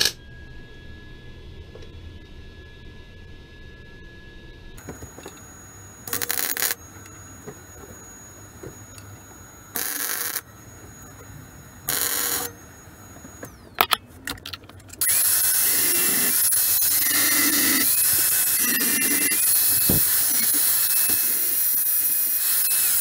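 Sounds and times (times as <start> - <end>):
angle grinder whining: 0.0 - 23.0
tools clicking and knocking: 13.4 - 15.1
welding hiss: 15.0 - 23.0.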